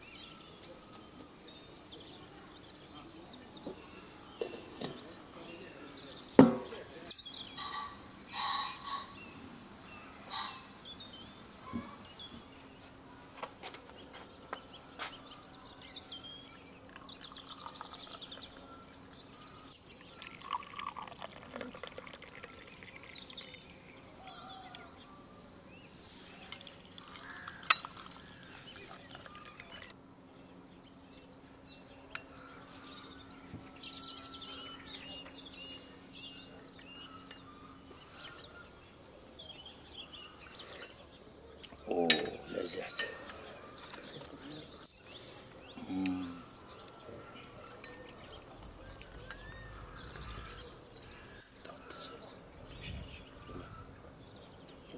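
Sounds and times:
small birds chirping: 0:00.0 - 0:54.9
tea pouring into glass: 0:16.9 - 0:18.6, 0:20.0 - 0:23.6, 0:26.6 - 0:28.2
glasses clinking on saucers: 0:27.6 - 0:28.2, 0:42.1 - 0:43.4.

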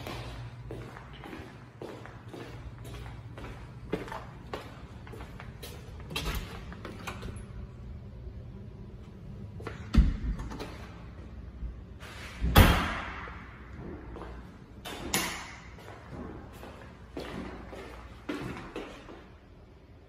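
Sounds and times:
knocks and thumps in empty room: 0:09.6 - 0:11.1.

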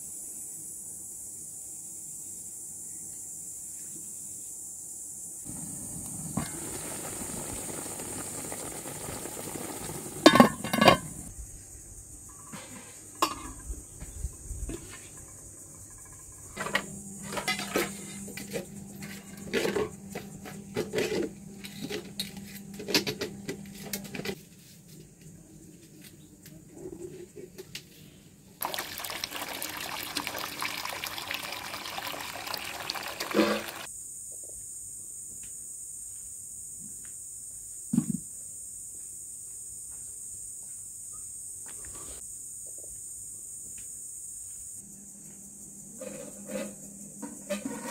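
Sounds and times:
metal pots clanking: 0:06.3 - 0:11.3, 0:12.3 - 0:13.7, 0:28.6 - 0:33.9
tap water splashing: 0:28.6 - 0:33.9.

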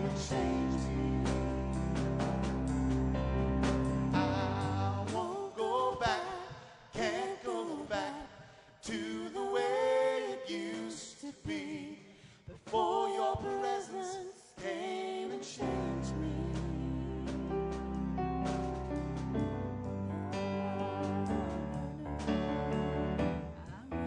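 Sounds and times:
man and woman singing: 0:00.0 - 0:02.0, 0:04.2 - 0:17.6, 0:20.4 - 0:22.7.

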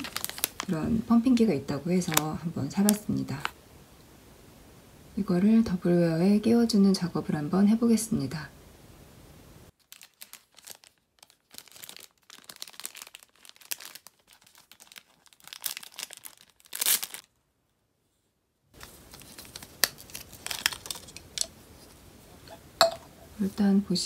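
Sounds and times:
plastic packaging crinkling: 0:00.0 - 0:03.5, 0:09.8 - 0:17.3, 0:18.8 - 0:22.6.

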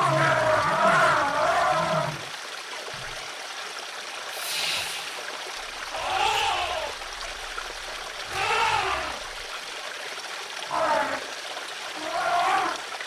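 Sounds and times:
brief hiss: 0:04.3 - 0:05.2.

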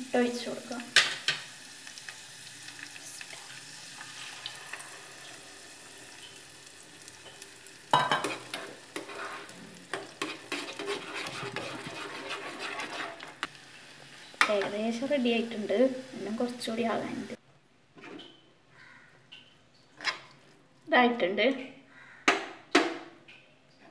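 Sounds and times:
egg sizzling in hot fat: 0:00.0 - 0:17.4
ghee sizzling in a saucepan: 0:00.0 - 0:17.4
spoon scraping and clinking pan: 0:08.0 - 0:13.5.

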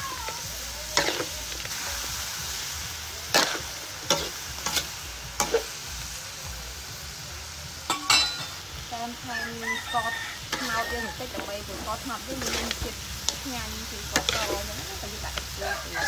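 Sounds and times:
chicken sizzling in a wok: 0:00.0 - 0:16.0
metal spatula clanking on wok: 0:07.9 - 0:08.6, 0:14.1 - 0:14.7.

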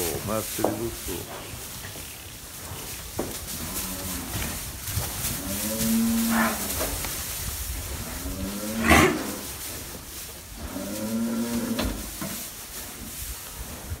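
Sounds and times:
cattle mooing: 0:05.4 - 0:06.8, 0:08.1 - 0:09.4.

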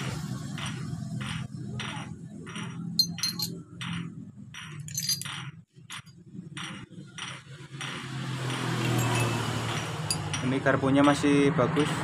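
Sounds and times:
metal parts clinking: 0:03.0 - 0:03.9, 0:04.6 - 0:06.1.

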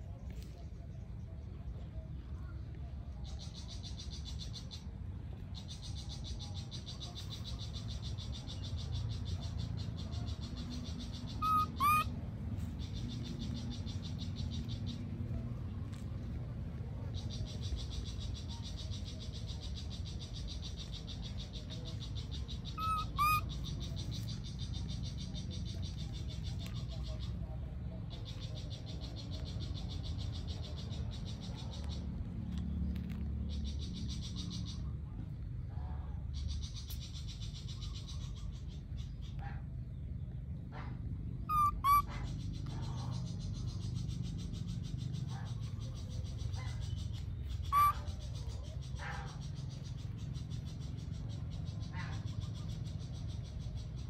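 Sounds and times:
baby monkey squeaky calls: 0:09.9 - 0:15.0, 0:17.1 - 0:27.4, 0:41.4 - 0:53.6
short high-pitched calls: 0:11.4 - 0:12.1, 0:22.8 - 0:23.6, 0:41.5 - 0:42.1, 0:47.6 - 0:48.1.

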